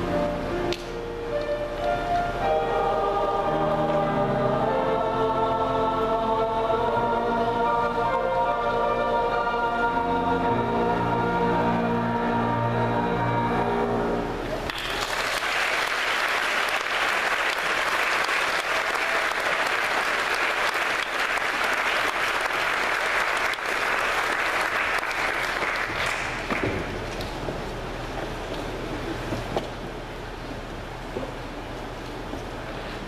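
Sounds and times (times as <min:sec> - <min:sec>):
choir singing a held chord: 0:02.2 - 0:14.5
audience applause: 0:14.6 - 0:27.0.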